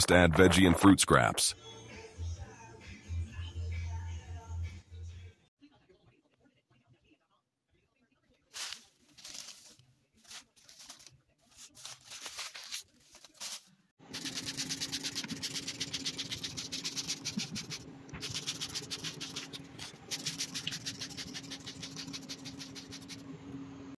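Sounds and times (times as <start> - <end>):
water spraying onto paper: 8.5 - 23.2.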